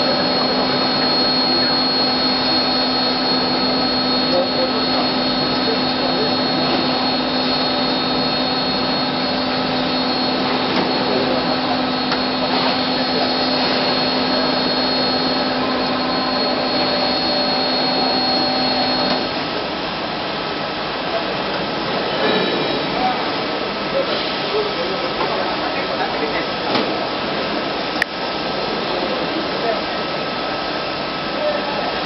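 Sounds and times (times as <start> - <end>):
machine whining tones: 0.0 - 19.8
machine hiss and hum: 0.0 - 32.0.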